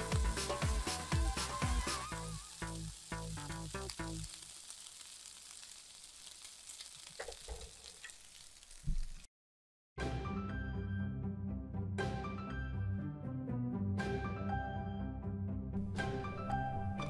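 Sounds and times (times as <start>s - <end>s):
background music: 0.0s - 4.1s, 10.0s - 17.0s
meat sizzling in a frying pan: 0.0s - 9.3s.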